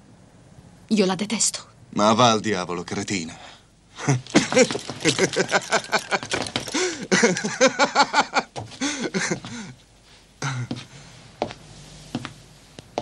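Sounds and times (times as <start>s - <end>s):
man laughing heartily: 4.0s - 9.7s.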